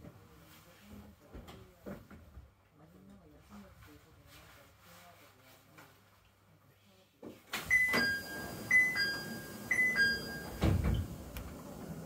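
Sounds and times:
two-note falling door chime: 7.7 - 10.9
low thud of doors: 10.5 - 11.2.

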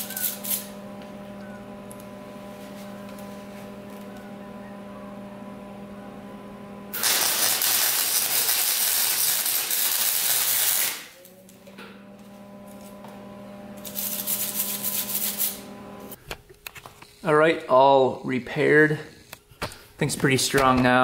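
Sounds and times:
welder arc crackling and hissing: 0.0 - 5.6, 6.8 - 16.2
electrical hum: 0.0 - 21.0.

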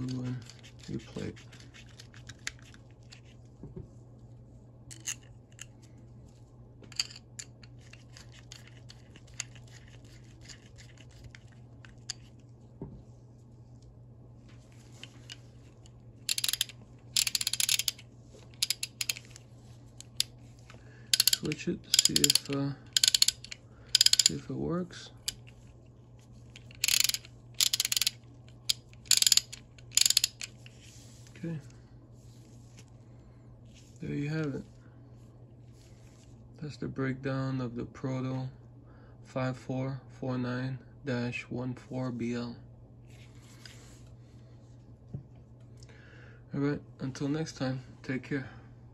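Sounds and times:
screwdriver scraping and clicking metal: 16.3 - 19.4, 21.2 - 24.4, 26.6 - 30.6.

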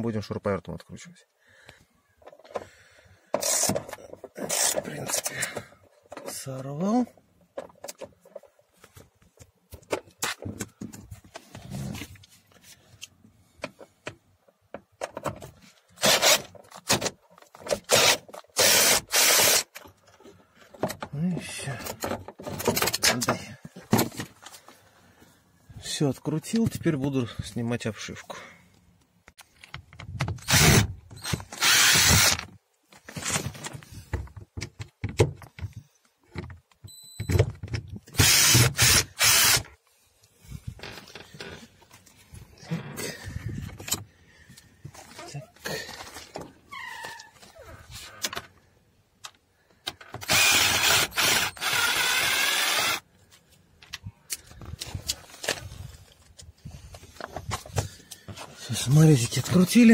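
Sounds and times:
cordless drill bursts: 3.4 - 3.7, 16.0 - 16.4, 17.9 - 19.7, 30.4 - 32.5, 38.2 - 39.7, 50.2 - 53.1
handling clicks and knocks: 7.1 - 11.5.

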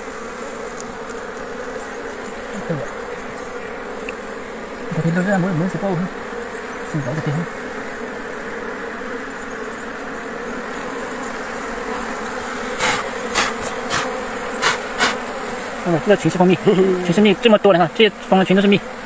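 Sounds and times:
bees buzzing: 0.0 - 19.0
sharp knocks: 12.8 - 15.2.

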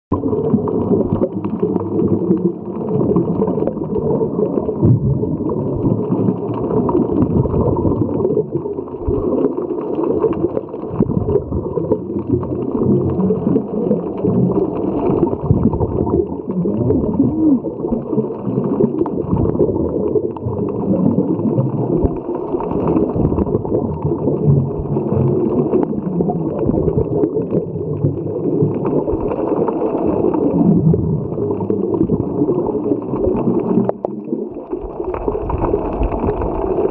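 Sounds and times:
underwater gurgling and rumble: 0.1 - 36.9.

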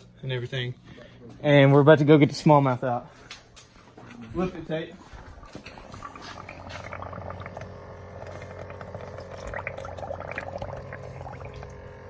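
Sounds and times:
aquarium air pump humming: 0.0 - 12.0
water sloshing in a bucket: 5.0 - 12.0.

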